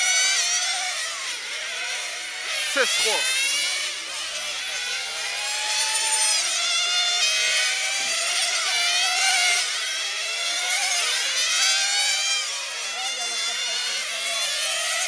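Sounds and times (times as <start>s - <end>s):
small engines screaming at high revs: 0.0s - 15.0s.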